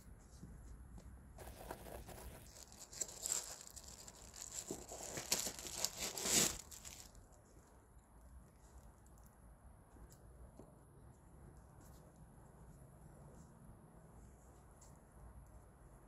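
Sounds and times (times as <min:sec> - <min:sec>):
paper crinkling and rustling: 0:01.4 - 0:07.2.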